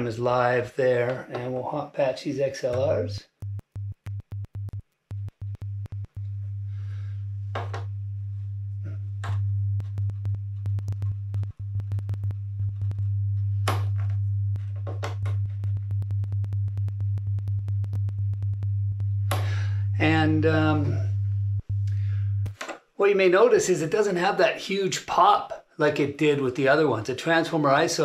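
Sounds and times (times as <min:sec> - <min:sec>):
low test tone: 0:02.8 - 0:22.6
connector clicks and crackles: 0:09.2 - 0:19.5.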